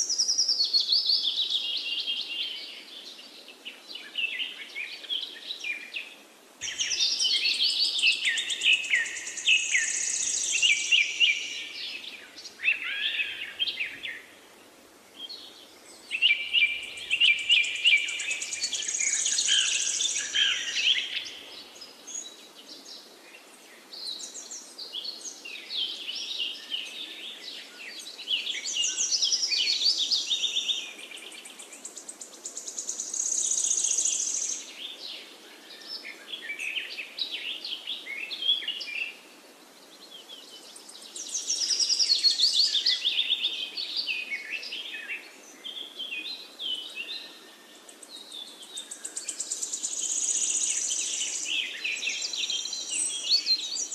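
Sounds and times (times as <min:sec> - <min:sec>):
birds chirping and singing: 0:06.6 - 0:14.3, 0:15.2 - 0:22.3, 0:47.9 - 0:53.9.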